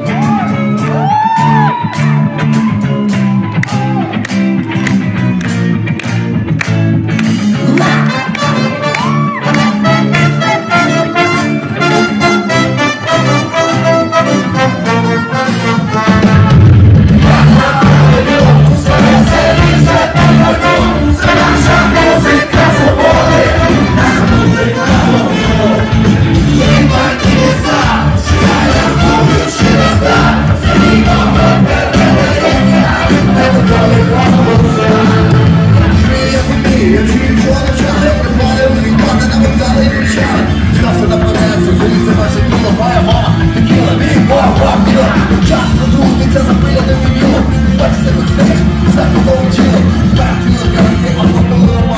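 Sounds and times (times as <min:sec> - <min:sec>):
bass guitar: 0:00.0 - 0:51.9
crowd noise: 0:00.0 - 0:51.9
electric guitars: 0:00.0 - 0:51.9
live brass band playing: 0:07.2 - 0:51.9
trumpet and trombone tune: 0:07.7 - 0:45.9
steady drum beat: 0:15.9 - 0:51.9.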